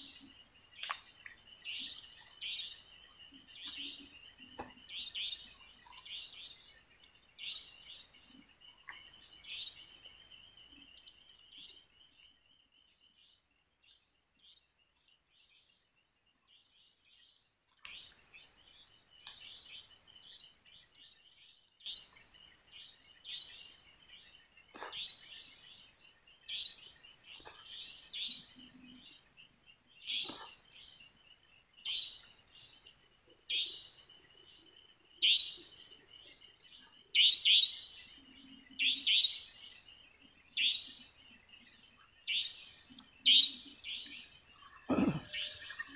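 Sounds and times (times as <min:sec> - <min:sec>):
small birds chirping: 0:00.0 - 0:45.9.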